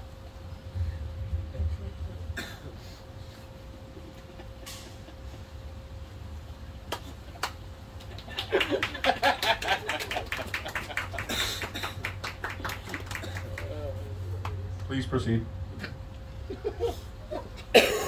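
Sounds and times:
people laughing: 3.9 - 5.7, 7.2 - 14.2, 16.4 - 17.7.

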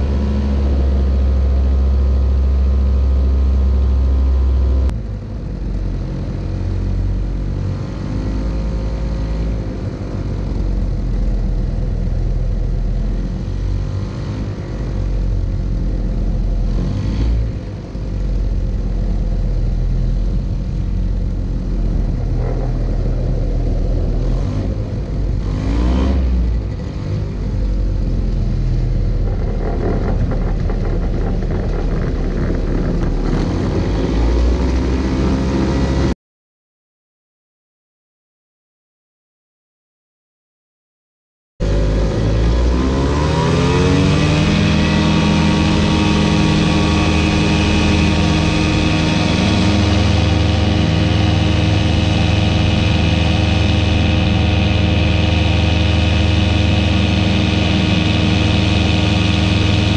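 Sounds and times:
propeller aircraft engine drone: 0.0 - 36.2, 41.6 - 59.9
wheels rolling on grass: 29.0 - 35.9.

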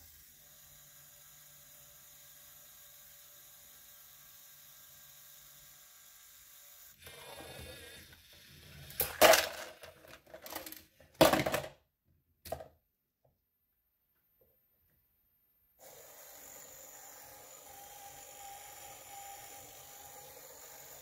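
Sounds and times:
plastic can clattering on table: 9.0 - 11.8
robot motor whirring: 15.8 - 21.0.

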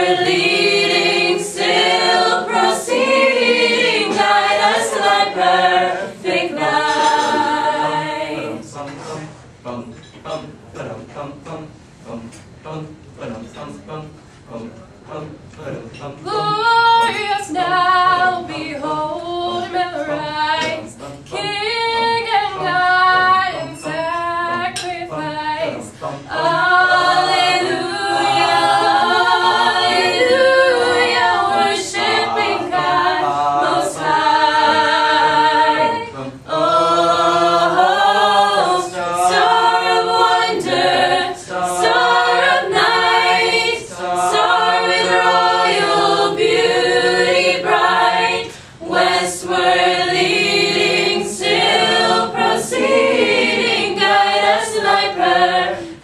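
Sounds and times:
choir singing a cappella: 0.0 - 56.0.

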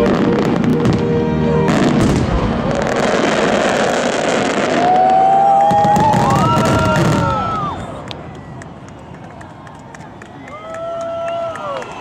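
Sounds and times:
firework whistle: 0.0 - 8.2
fireworks crackling and popping: 1.7 - 10.2.

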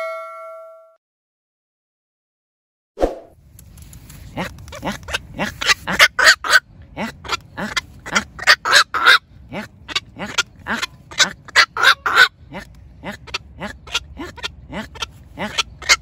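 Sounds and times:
heron calling rapidly: 4.4 - 16.0.

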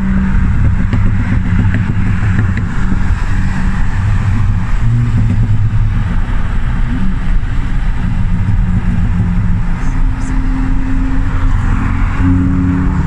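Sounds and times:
car engine drone: 0.0 - 13.0
tyre and wind noise: 0.0 - 13.0.

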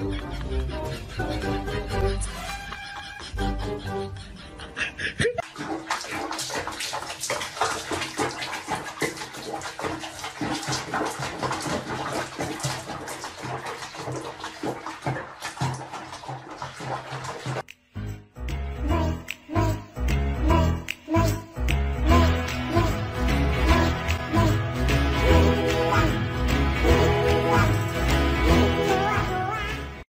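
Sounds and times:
water splashing in a basin: 5.4 - 17.7.

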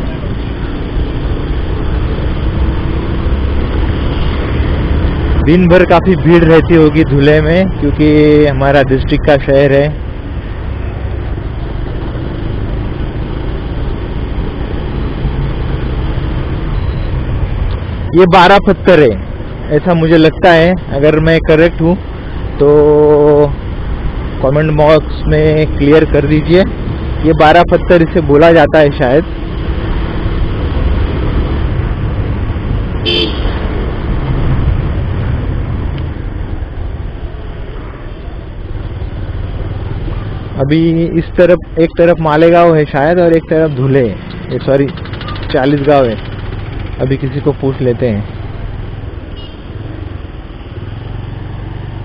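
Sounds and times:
road rumble: 0.0 - 52.0
wind noise: 29.7 - 37.1
vehicle horn toot: 33.0 - 33.6, 49.4 - 49.6
motorcycle engine running: 44.0 - 47.6.

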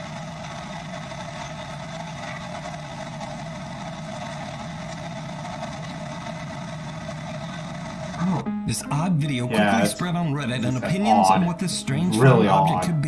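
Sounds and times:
airliner cabin drone: 0.0 - 13.0.

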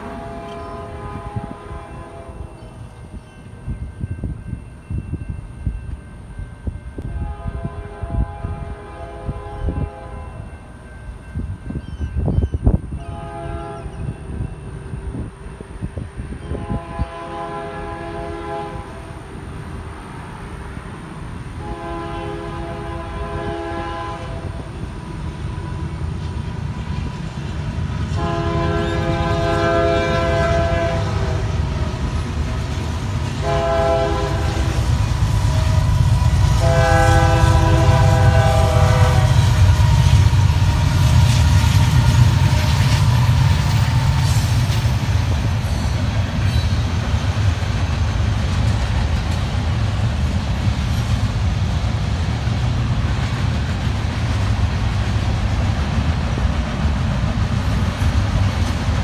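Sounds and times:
locomotive horn blasts: 0.0 - 2.5, 7.0 - 10.6, 12.9 - 14.1, 16.5 - 19.2, 21.6 - 24.7, 28.1 - 31.6, 33.3 - 42.9
locomotive engines rumbling: 0.0 - 59.0.

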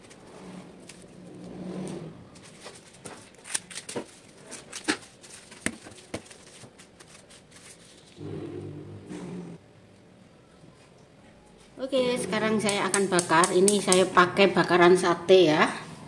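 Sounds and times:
clicks and rustling of leaf packets: 2.3 - 8.2.

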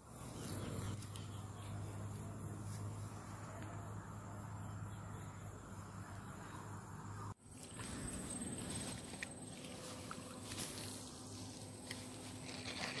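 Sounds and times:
insects chirping: 0.0 - 13.0
low steady hum: 0.0 - 13.0.

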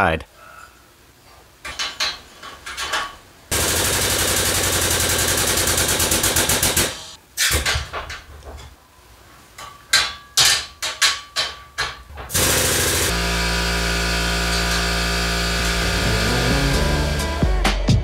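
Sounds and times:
impact wrench hammering: 9.9 - 17.2.

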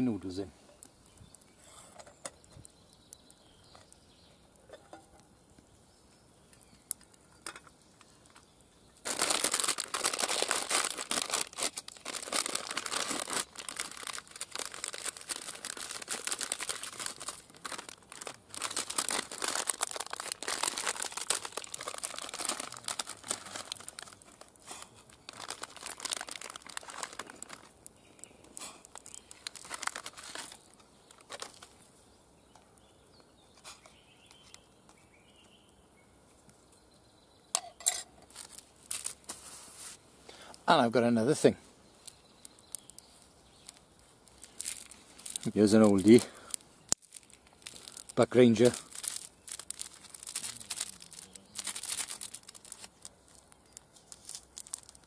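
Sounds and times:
plastic packet crinkling: 9.0 - 31.8, 38.2 - 39.4, 42.0 - 55.0.

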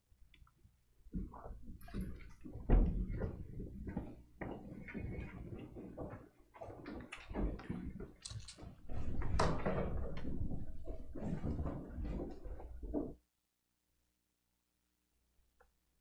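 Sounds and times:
footsteps and shuffling: 1.1 - 13.2.

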